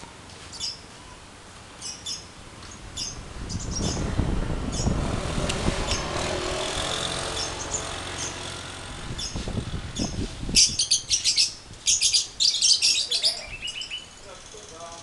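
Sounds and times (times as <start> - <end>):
lovebirds chirping: 0.4 - 1.2, 1.8 - 5.0, 9.2 - 15.0.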